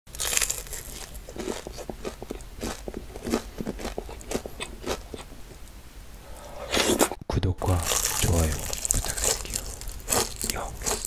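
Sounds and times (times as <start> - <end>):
crunching and chewing: 0.1 - 5.6, 7.8 - 11.0.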